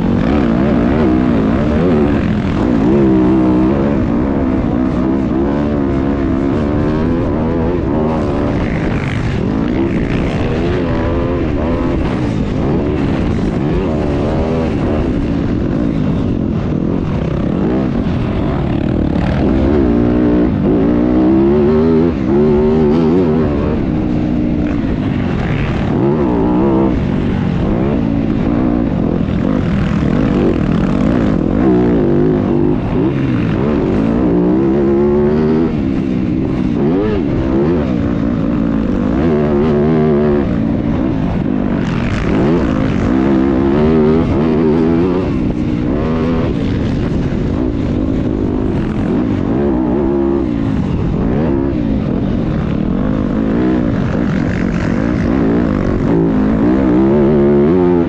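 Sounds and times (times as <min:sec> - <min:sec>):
motocross bikes revving: 0:00.0 - 0:58.0.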